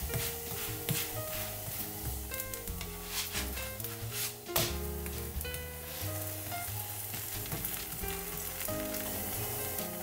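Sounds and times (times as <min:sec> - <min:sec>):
background music: 0:00.0 - 0:10.0
batter sizzling in a pan: 0:00.0 - 0:10.0
plastic spatula sliding in a pan: 0:02.9 - 0:04.7.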